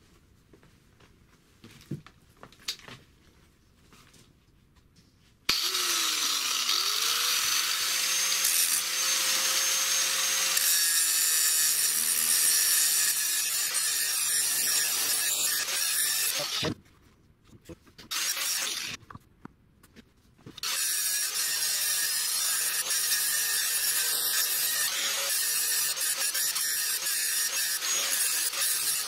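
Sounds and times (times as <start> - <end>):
angle grinder grinding steel: 5.5 - 16.8, 18.1 - 19.0, 20.6 - 29.0.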